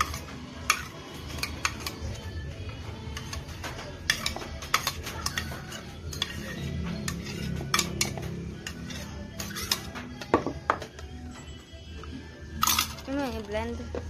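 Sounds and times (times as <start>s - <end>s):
metal utensil scraping ceramic bowl: 0.0s - 2.3s, 3.1s - 10.2s, 12.6s - 13.1s.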